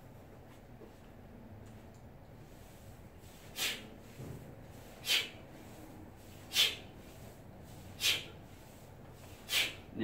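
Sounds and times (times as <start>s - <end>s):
man breathing sharply: 3.5s - 3.9s, 5.0s - 5.4s, 6.4s - 6.9s, 8.0s - 8.4s, 9.4s - 9.9s.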